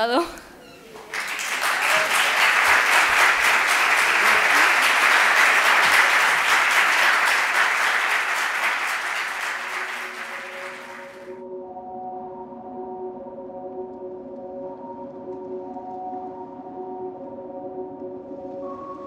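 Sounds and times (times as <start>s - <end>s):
audience applauding: 0.9s - 11.3s.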